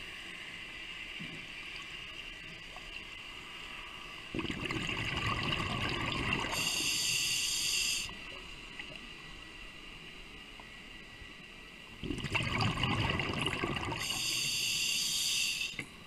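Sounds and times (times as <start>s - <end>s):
faint steady hiss: 0.0s - 16.0s
regulator exhale bubbling: 4.3s - 8.1s, 12.0s - 15.8s.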